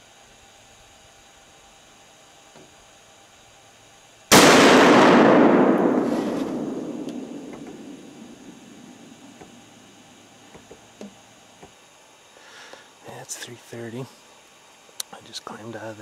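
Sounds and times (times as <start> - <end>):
gunshot with echo: 4.3 - 8.9.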